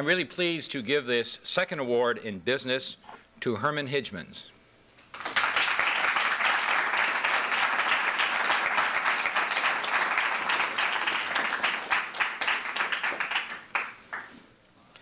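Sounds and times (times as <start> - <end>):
audience applauding: 5.1 - 14.4.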